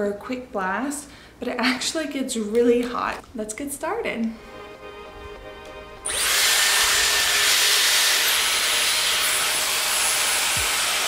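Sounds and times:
hair styler blowing air: 6.0 - 11.0
hair styler switch: 6.1 - 11.0.

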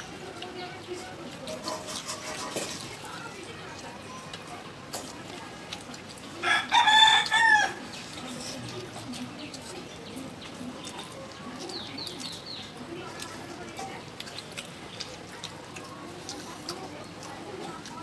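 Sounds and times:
rooster crowing: 6.4 - 7.8.

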